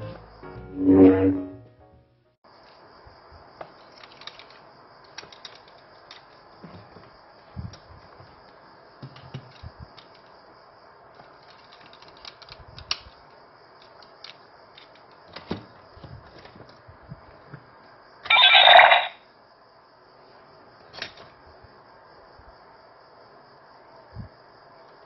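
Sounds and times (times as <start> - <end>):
toy electronic sound effect: 0.8 - 1.5, 18.3 - 19.2
plastic toy clicks and knocks: 4.0 - 6.3, 11.4 - 13.2.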